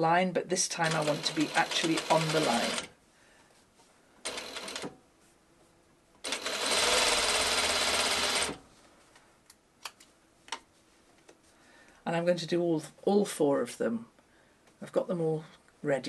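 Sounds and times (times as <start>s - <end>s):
sewing machine stitching: 0.8s - 2.9s, 4.3s - 4.9s, 6.2s - 8.6s.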